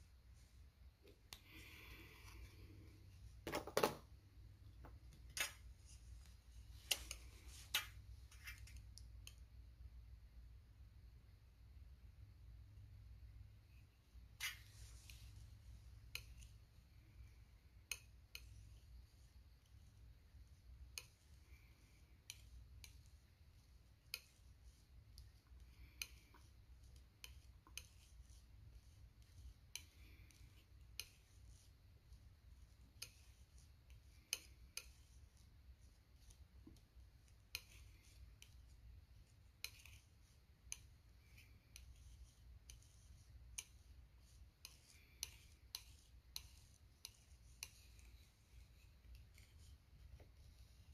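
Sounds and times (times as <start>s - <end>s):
wet paint smearing: 13.7s - 50.9s.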